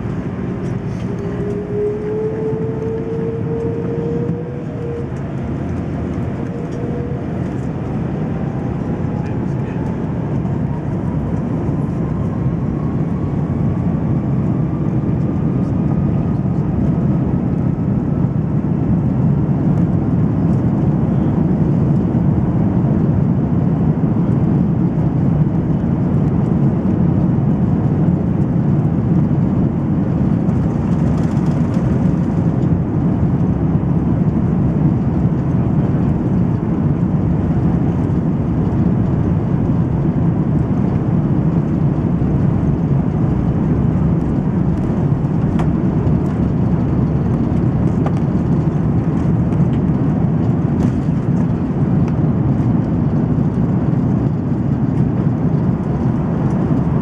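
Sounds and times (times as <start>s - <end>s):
airliner taxiing rumble: 0.0s - 57.0s.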